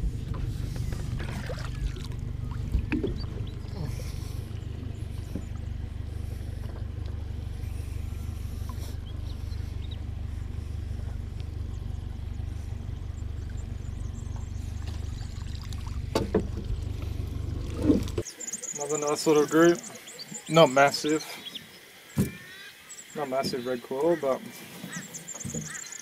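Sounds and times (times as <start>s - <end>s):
steady low rumble: 0.0s - 19.1s.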